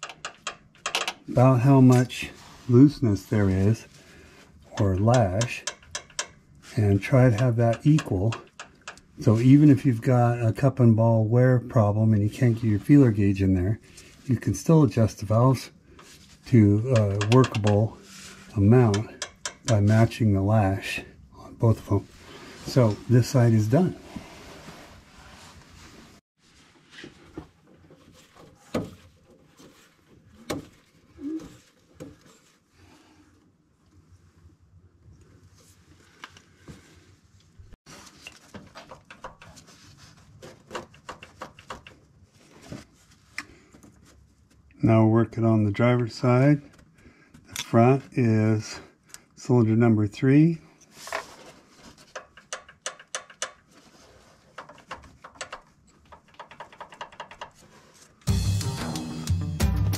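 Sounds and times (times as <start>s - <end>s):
light metal clicks and taps: 0.0s - 1.2s, 4.8s - 6.4s, 7.4s - 9.1s, 17.0s - 17.8s, 18.9s - 19.8s.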